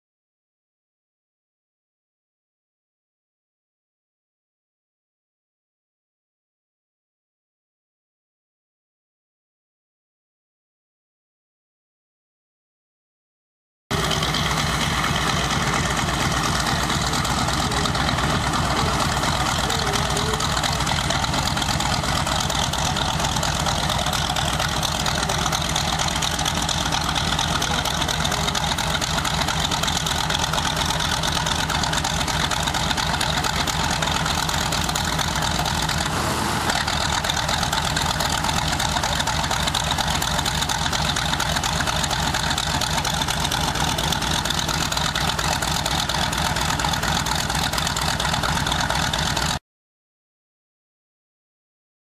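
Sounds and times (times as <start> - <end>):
radial engine idling: 13.9 - 49.6.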